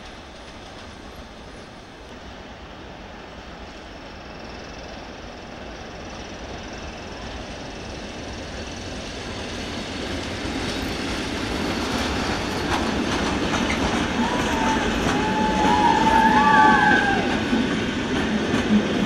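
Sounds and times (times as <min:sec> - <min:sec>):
train rolling past: 0:00.0 - 0:19.0
wheels clattering over rail joints: 0:10.1 - 0:16.0.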